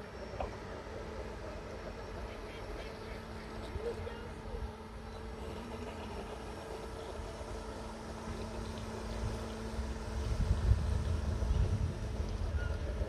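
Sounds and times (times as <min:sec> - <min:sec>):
model boat motors humming: 0:00.0 - 0:13.0
wind rumble on microphone: 0:09.0 - 0:13.0.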